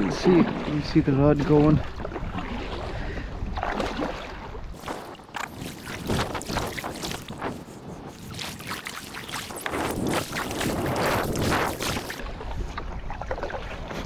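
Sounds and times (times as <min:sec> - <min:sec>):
water splashing against kayak hull: 0:00.0 - 0:14.0
wind rumble on microphone: 0:00.0 - 0:14.0.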